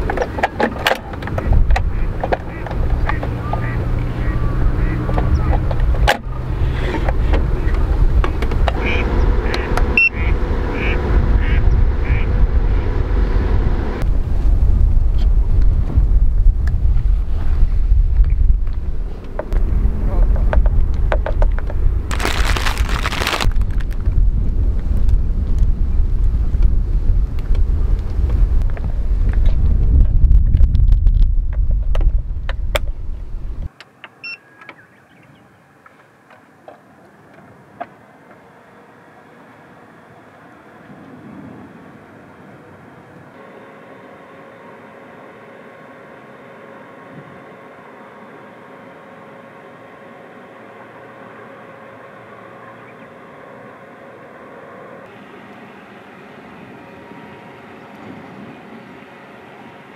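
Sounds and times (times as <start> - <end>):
wind rumble on microphone: 0.0 - 33.7, 40.8 - 43.4.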